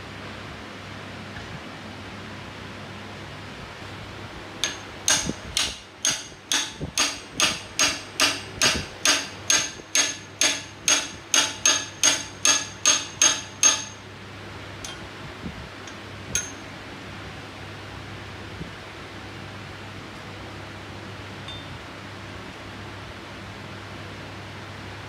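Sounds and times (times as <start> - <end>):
hammer tapping metal: 4.6 - 14.0, 15.9 - 16.7.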